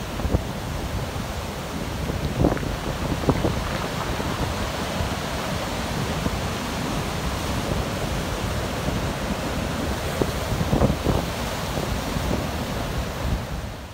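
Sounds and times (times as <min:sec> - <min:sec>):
surf breaking on beach: 0:00.0 - 0:13.9.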